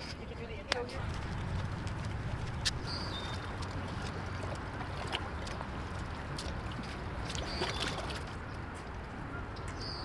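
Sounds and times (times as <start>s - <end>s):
water sloshing against a wall: 1.0s - 8.7s.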